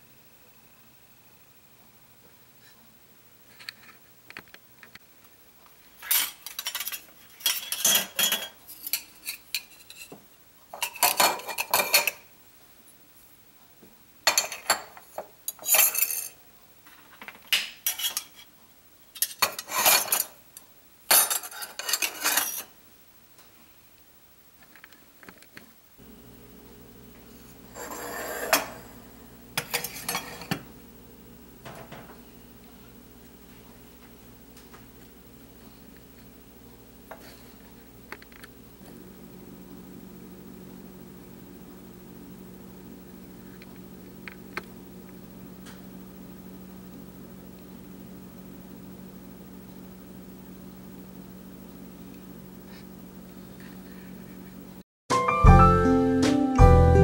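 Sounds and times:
metal utensils clattering on ceramic: 0:06.0 - 0:10.1, 0:10.7 - 0:12.2, 0:14.3 - 0:16.4, 0:17.8 - 0:18.4, 0:19.2 - 0:20.4, 0:21.1 - 0:22.7
low steady hum: 0:25.8 - 0:54.8.

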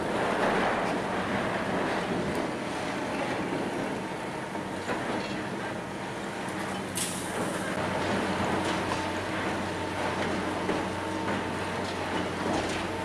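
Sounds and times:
diesel excavator engine running: 0:00.0 - 0:13.0
rattling and clatter of rubble: 0:11.7 - 0:13.0.

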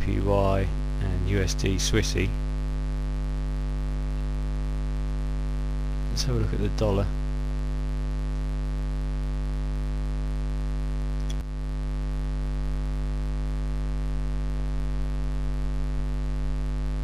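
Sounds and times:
electrical mains hum: 0:00.0 - 0:17.0
brief click: 0:11.2 - 0:11.4.

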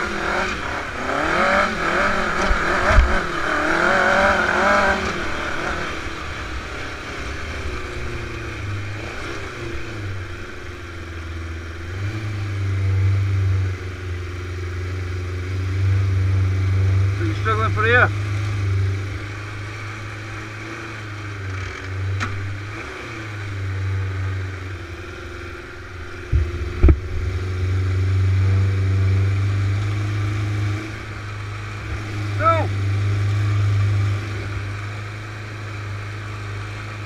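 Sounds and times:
dune buggy engine revving: 0:00.0 - 0:37.0
sharp thump: 0:26.3 - 0:27.3.

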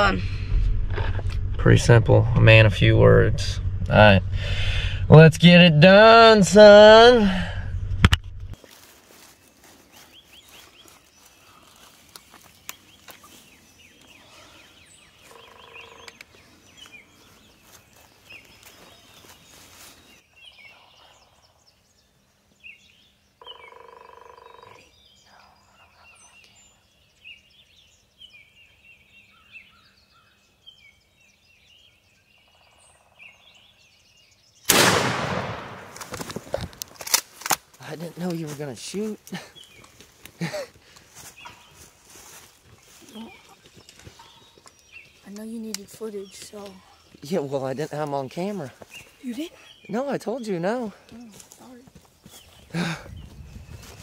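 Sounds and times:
songbird calls: 0:09.8 - 0:34.7, 0:39.0 - 0:47.5
shotgun shot: 0:34.7 - 0:36.4.

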